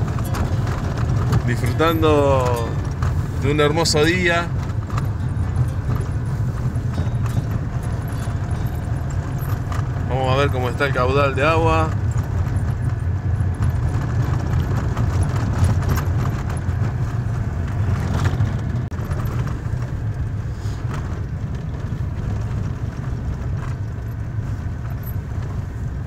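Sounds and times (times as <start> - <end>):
wind buffeting microphone: 0.0 - 10.9.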